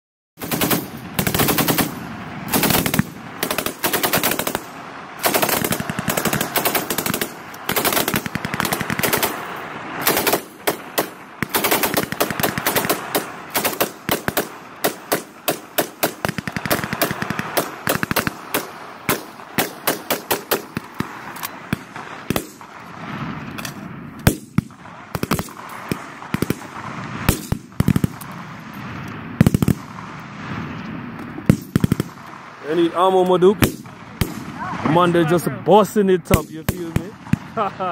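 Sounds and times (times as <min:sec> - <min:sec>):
machine gun firing bursts: 0:00.4 - 0:22.8, 0:24.2 - 0:28.3, 0:29.4 - 0:30.1, 0:31.5 - 0:32.3.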